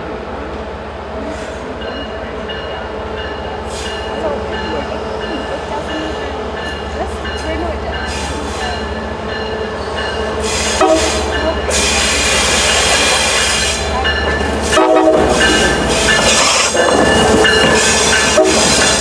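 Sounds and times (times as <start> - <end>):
diesel locomotive engine rumble: 0.0 - 19.0
train horn: 10.6 - 12.4, 14.6 - 15.7, 17.8 - 19.0.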